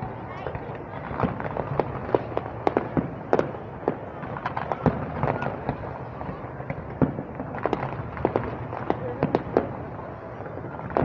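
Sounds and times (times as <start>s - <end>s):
background noise: 0.0s - 11.0s
fireworks bangs and crackling: 0.0s - 11.0s.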